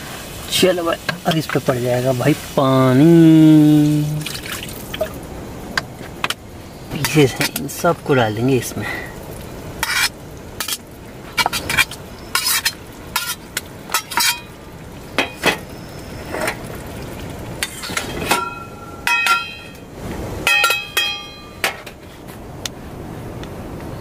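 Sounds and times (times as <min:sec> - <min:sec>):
curry simmering hiss: 0:00.0 - 0:22.3
spoon stirring and scraping pan: 0:09.8 - 0:14.6
metal lid clanking on pan: 0:11.4 - 0:14.5, 0:17.6 - 0:19.8, 0:20.4 - 0:22.0
spoon clinking on pan: 0:17.6 - 0:19.8, 0:20.5 - 0:21.7.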